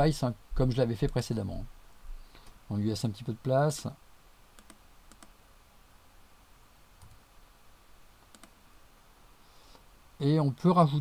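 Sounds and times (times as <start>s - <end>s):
computer mouse clicks: 4.5s - 5.4s, 7.0s - 7.2s, 8.2s - 8.6s.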